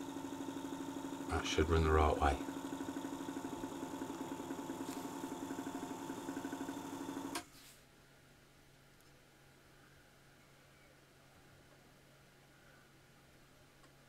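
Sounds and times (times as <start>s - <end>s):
electric motor humming: 0.0s - 7.4s.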